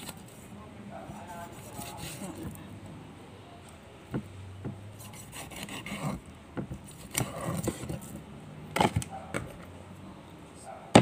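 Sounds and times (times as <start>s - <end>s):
knife scraping fish scales: 1.2s - 2.6s, 5.0s - 6.2s.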